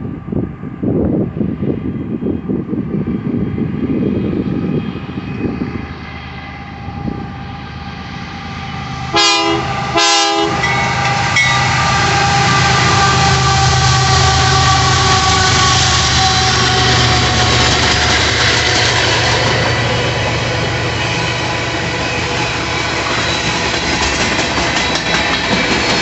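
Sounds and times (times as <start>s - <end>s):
diesel freight train engine: 0.0s - 26.0s
wind buffeting microphone: 0.0s - 26.0s
train air horn blasts: 9.0s - 19.6s.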